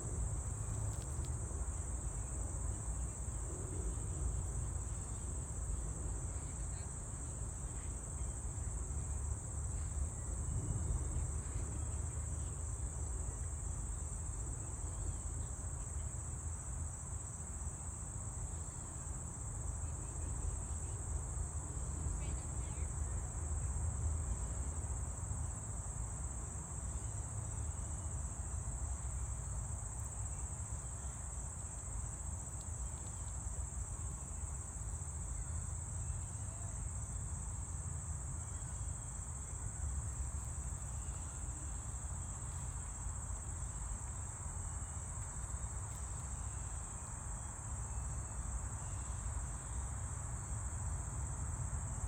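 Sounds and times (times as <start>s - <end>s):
insects trilling: 26.8s - 51.3s.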